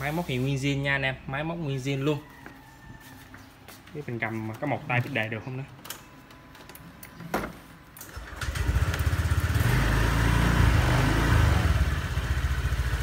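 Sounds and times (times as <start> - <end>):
scooter engine starting and idling: 8.0 - 13.0.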